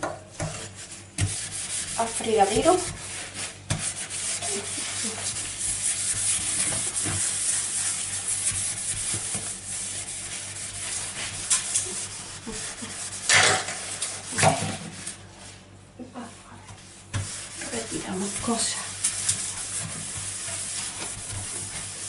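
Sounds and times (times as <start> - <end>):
sponge scrubbing metal sink: 0.0 - 15.2, 16.7 - 22.0.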